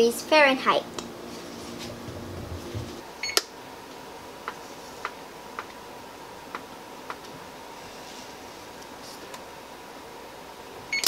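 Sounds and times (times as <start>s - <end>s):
oven keypad beeps: 3.2s - 3.4s.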